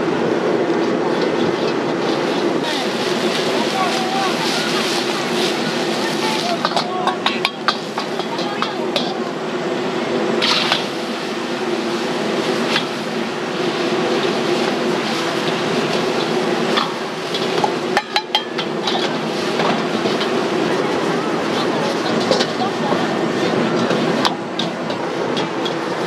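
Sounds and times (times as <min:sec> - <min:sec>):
gas burner roaring: 0:00.0 - 0:26.0
metal ladle clinking on wok: 0:18.0 - 0:19.1.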